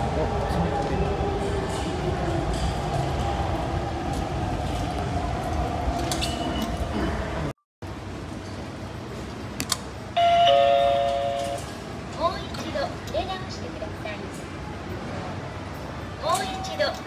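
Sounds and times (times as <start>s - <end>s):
station background noise: 0.0s - 17.0s
ticket gate error chime: 10.2s - 11.8s.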